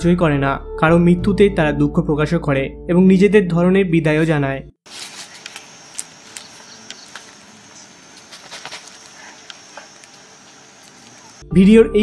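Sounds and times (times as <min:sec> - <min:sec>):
light clicks and rustles: 0:04.9 - 0:07.4, 0:08.1 - 0:11.2
steady hiss: 0:04.9 - 0:11.4.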